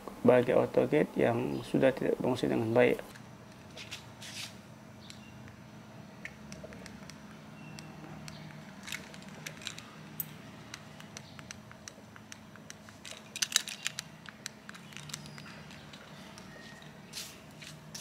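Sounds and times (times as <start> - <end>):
keys clicking and jingling: 8.7 - 11.2, 13.0 - 17.0.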